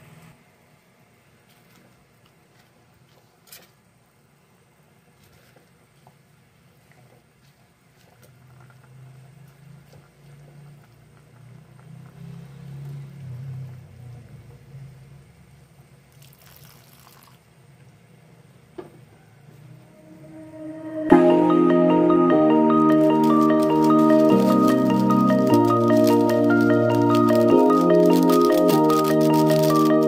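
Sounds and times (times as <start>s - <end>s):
broth bubbling in a pot: 16.0s - 17.6s.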